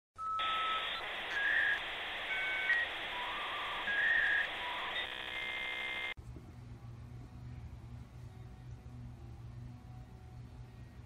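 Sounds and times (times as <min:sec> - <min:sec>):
electronic whistle-like tones: 0:00.2 - 0:06.1
buzzy electronic tone: 0:00.8 - 0:06.2.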